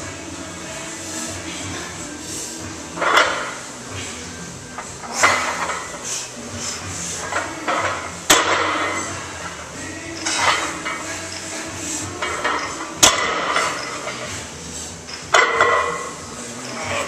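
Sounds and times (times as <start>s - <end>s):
barbell plates clanking: 3.0s - 3.6s, 5.0s - 6.1s, 7.2s - 9.3s, 12.2s - 14.4s, 15.1s - 17.0s
plates rattling on bar: 15.3s - 17.0s.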